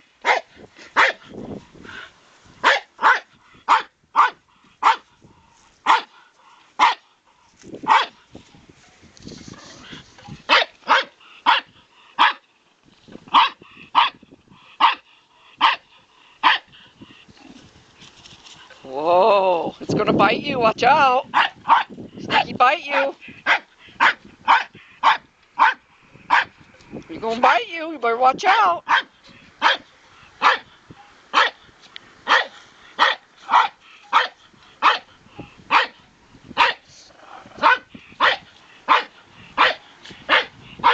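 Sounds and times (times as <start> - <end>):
small dog barking: 0.2 - 1.2, 2.6 - 5.0, 5.8 - 6.2, 6.8 - 7.1, 7.8 - 8.2, 10.5 - 12.4, 13.3 - 14.2, 14.8 - 15.0, 15.6 - 15.8, 16.4 - 16.7, 21.3 - 26.5, 28.8 - 31.6, 32.2 - 35.1, 35.7 - 36.0, 36.6 - 36.8, 37.6 - 40.9.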